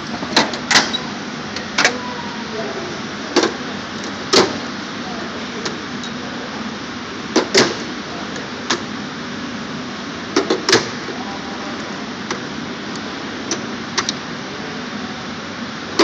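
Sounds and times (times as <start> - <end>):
steel drawers clunking shut: 0.0 - 2.0, 3.3 - 4.6, 7.3 - 8.0, 10.3 - 11.1.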